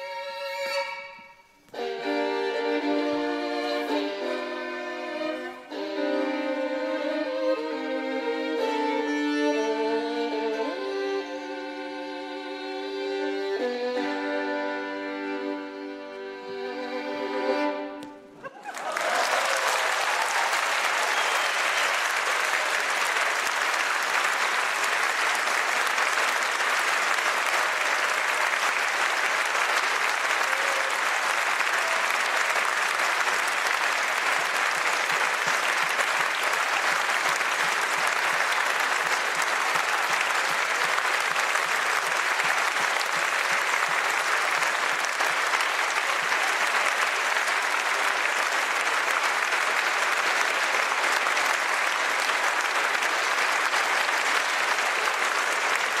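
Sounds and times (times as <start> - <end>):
audience applauding: 15.1 - 56.0.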